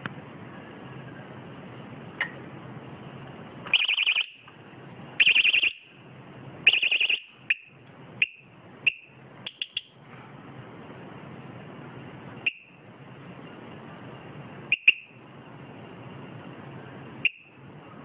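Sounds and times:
high-pitched pulsed alarm beeping: 0:03.8 - 0:04.4, 0:05.2 - 0:05.9, 0:06.7 - 0:09.9.

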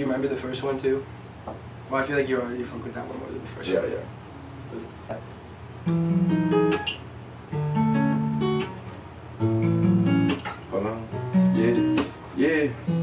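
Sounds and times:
fingerstyle acoustic guitar: 0:05.8 - 0:13.0.

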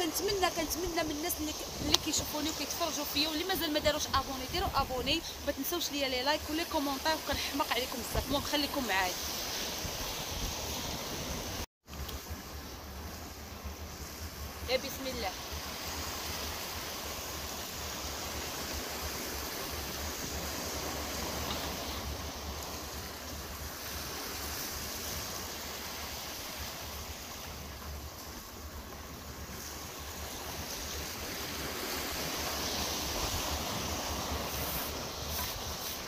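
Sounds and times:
wind rumbling on microphone: 0:00.0 - 0:36.0
waves washing against rocks: 0:14.0 - 0:36.0.

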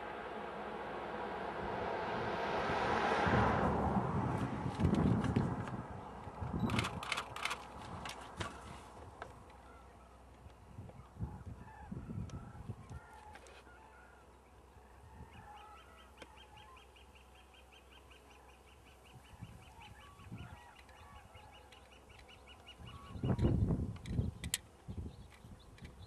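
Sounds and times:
cranes calling: 0:08.2 - 0:23.5.

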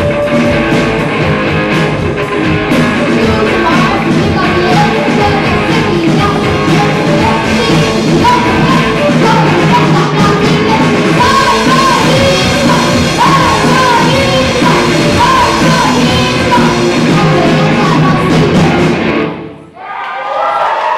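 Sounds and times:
live rock band playing: 0:00.0 - 0:19.7
child singing: 0:03.0 - 0:19.0.

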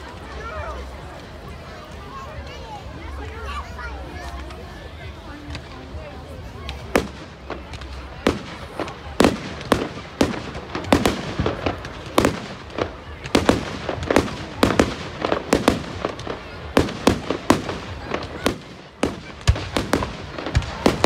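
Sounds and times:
fireworks bangs: 0:06.6 - 0:21.0.

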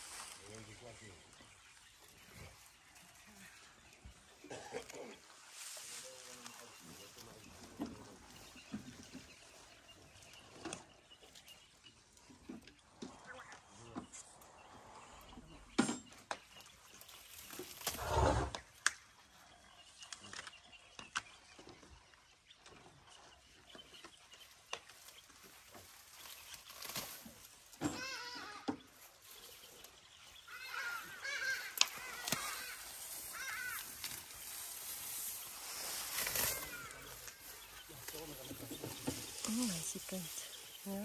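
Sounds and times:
elephant pulling and chewing grass: 0:00.0 - 0:12.2, 0:16.5 - 0:18.2, 0:22.6 - 0:41.0
birds calling harshly: 0:00.0 - 0:41.0.

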